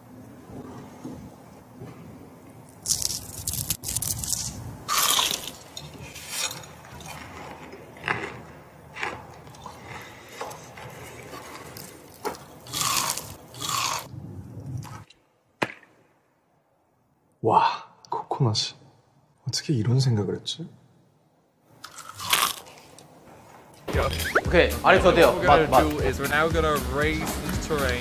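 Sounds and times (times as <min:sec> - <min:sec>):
crunchy food chewing: 0:02.6 - 0:14.1, 0:21.8 - 0:23.1.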